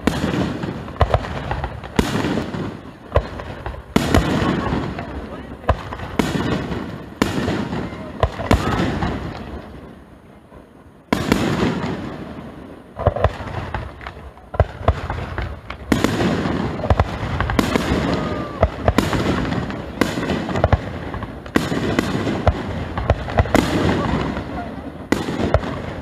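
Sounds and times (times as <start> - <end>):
firework booms: 0.0 - 26.0
firework crackling: 0.0 - 26.0.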